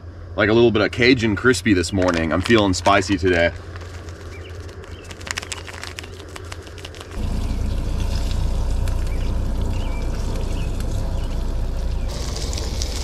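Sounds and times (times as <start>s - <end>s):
breading shaken from cardboard box: 2.4s - 7.2s
steady low rushing noise: 7.2s - 13.0s.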